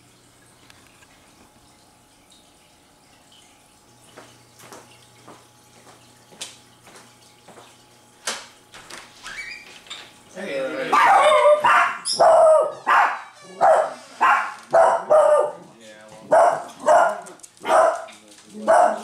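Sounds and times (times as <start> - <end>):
footsteps on hardwood floor: 4.1 - 7.8.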